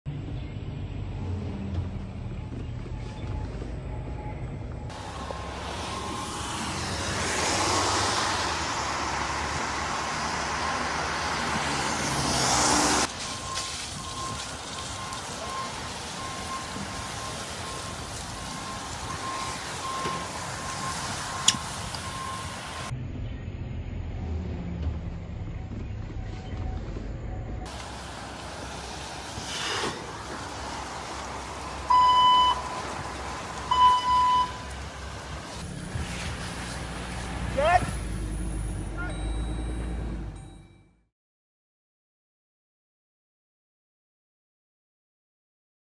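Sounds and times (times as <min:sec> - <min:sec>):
car engines running: 0:00.1 - 0:40.8
tyres hissing on wet road: 0:04.9 - 0:22.9, 0:27.7 - 0:38.8
electronic censor bleeps: 0:31.9 - 0:32.8, 0:33.7 - 0:34.6
short high beeps: 0:33.7 - 0:34.6.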